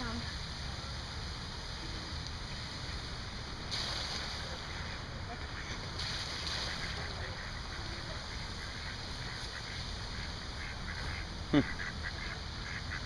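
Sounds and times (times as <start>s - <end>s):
ducks quacking: 4.5s - 13.0s
geese honking: 6.5s - 13.0s.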